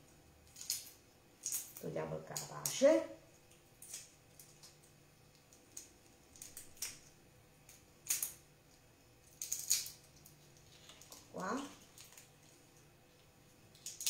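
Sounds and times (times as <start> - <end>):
prawn shell crackling: 9.2 - 14.0.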